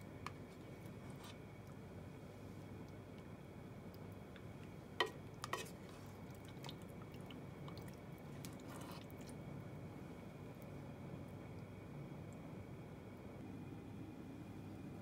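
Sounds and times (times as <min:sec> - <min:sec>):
ladle scooping wet food: 0:00.1 - 0:10.8.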